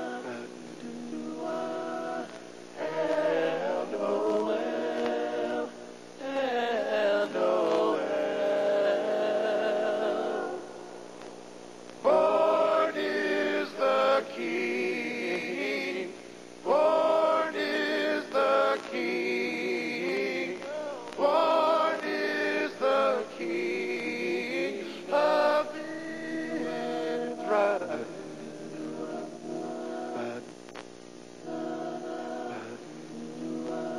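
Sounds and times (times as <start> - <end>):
men singing carol in harmony: 0.0 - 10.7, 12.0 - 30.5, 31.4 - 33.9.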